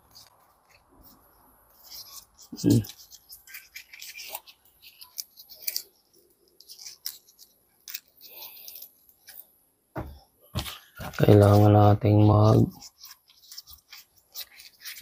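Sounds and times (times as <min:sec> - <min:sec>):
dull thumps: 0:09.9 - 0:11.2.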